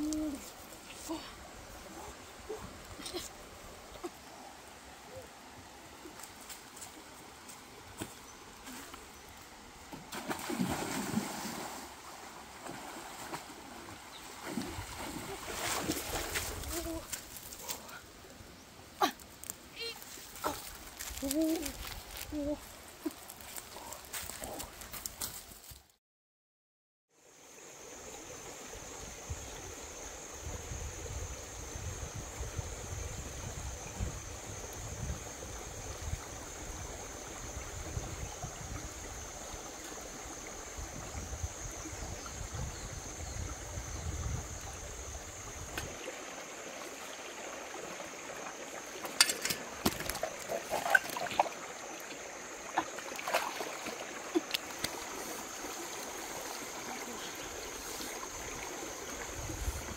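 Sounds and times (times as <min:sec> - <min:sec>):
rocky stream flowing: 0:00.0 - 0:25.8, 0:34.2 - 0:59.9.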